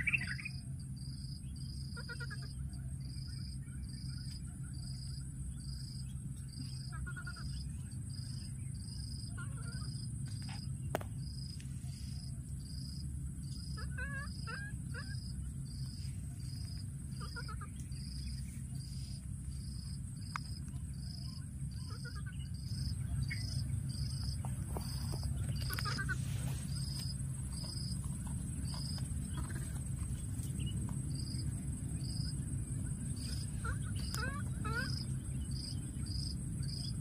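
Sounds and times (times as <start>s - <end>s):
insect chirping: 0.0s - 37.0s
baby monkey high-pitched calls: 1.7s - 2.7s, 6.5s - 8.4s, 9.2s - 10.6s, 13.5s - 18.4s, 21.0s - 27.9s, 33.2s - 35.7s
low rumble: 2.6s - 37.0s.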